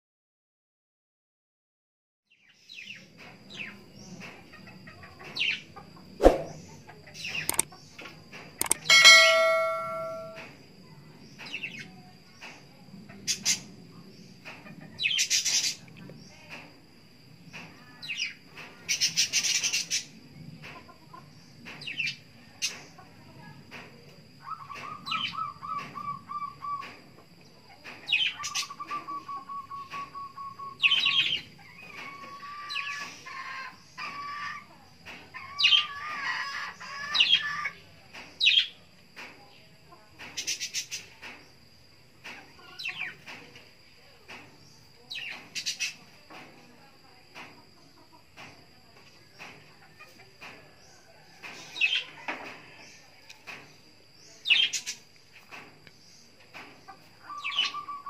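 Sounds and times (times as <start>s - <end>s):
wing flapping: 6.2s - 6.6s
songbird sharp chirps: 8.6s - 10.4s
faint high whine: 8.6s - 11.0s.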